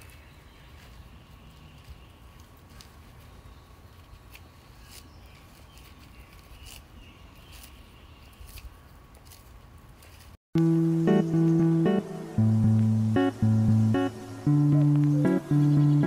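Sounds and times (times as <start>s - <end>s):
lettuce leaves snapping: 0.0s - 10.4s
faint outdoor background: 0.0s - 16.0s.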